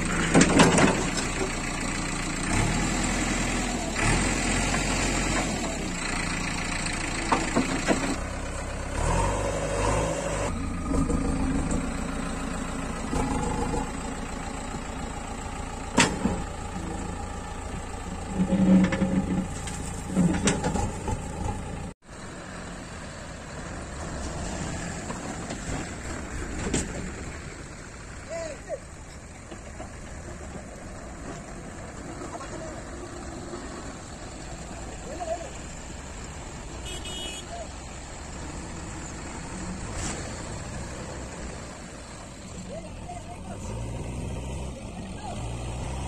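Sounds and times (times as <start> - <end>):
diesel engine running: 0.0 - 46.0.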